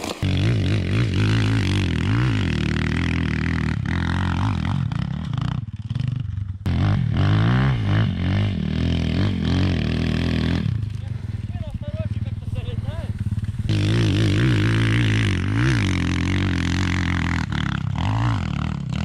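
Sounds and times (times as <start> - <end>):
motorcycle engine revving: 0.0 - 19.0.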